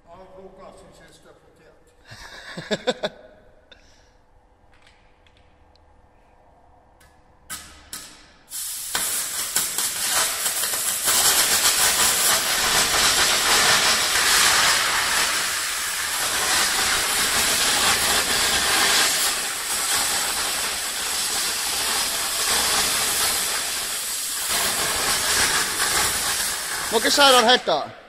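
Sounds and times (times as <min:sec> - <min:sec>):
cutting torch hissing: 0:08.5 - 0:27.8.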